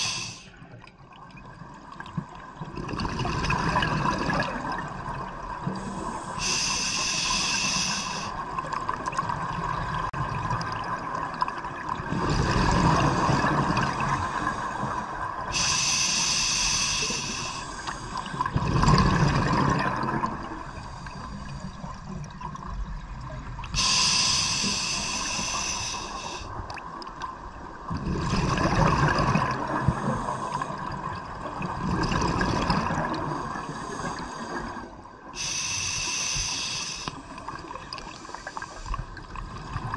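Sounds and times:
regulator hissing inhale: 0.0 - 0.6, 5.8 - 8.4, 14.2 - 18.3, 20.6 - 22.0, 23.8 - 26.6, 29.9 - 30.8, 33.4 - 37.4, 38.2 - 39.0
bubbling exhaust underwater: 1.4 - 27.1, 27.8 - 39.9.

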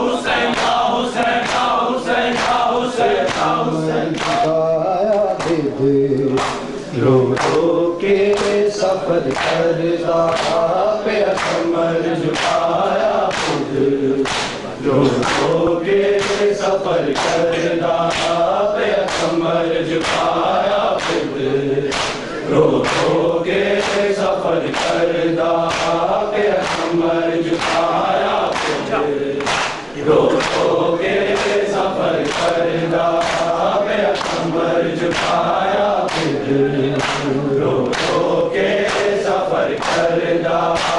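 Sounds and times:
men chanting together: 0.0 - 40.9
hand slaps on chests: 0.5 - 1.7, 3.2 - 5.6, 6.4 - 6.7, 8.3 - 8.6, 10.3 - 10.6, 11.3 - 11.7, 12.4 - 12.7, 13.3 - 13.6, 14.2 - 14.6, 16.2 - 16.5, 18.1 - 18.4, 19.0 - 19.4, 20.0 - 20.4, 21.0 - 21.3, 21.9 - 22.2, 23.8 - 24.1, 24.7 - 26.0, 26.6 - 28.8, 29.4 - 30.7, 33.2 - 34.5, 35.1 - 35.5, 36.1 - 36.4, 37.0 - 38.2, 38.8 - 39.2.

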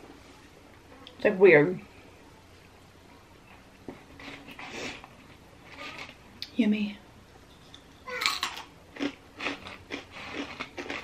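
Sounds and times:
low room hum: 0.0 - 11.0
quiet chewing: 3.4 - 6.5, 7.5 - 11.0.

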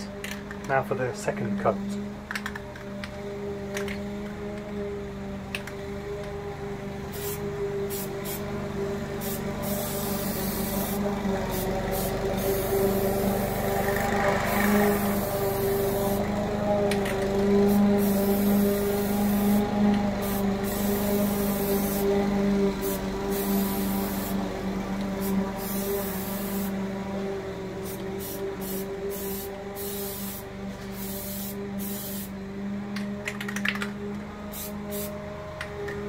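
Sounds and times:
lawnmower engine running: 3.4 - 32.4
aerosol can hissing: 7.1 - 8.4, 9.2 - 16.3, 17.7 - 22.1, 22.8 - 24.4, 25.2 - 26.8, 27.8 - 32.3, 34.5 - 35.1.

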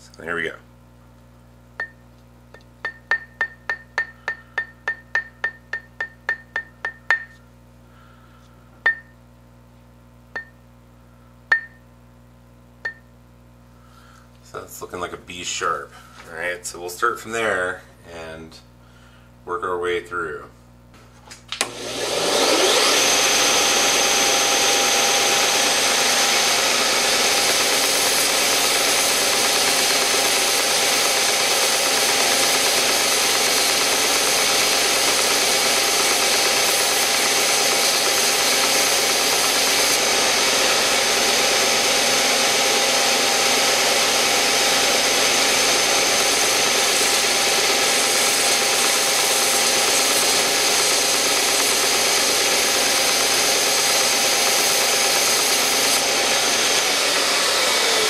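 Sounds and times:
belt sander motor whining: 21.6 - 58.0
wooden bar sanded on belt: 22.5 - 58.0.

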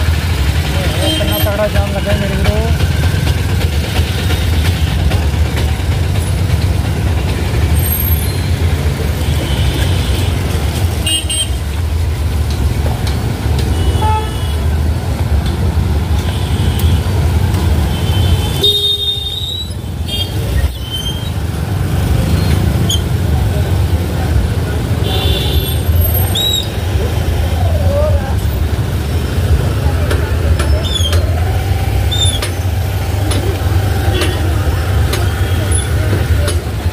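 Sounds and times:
traffic rumble: 0.0 - 36.9
vehicle horn toots: 13.7 - 14.6, 18.0 - 20.4.

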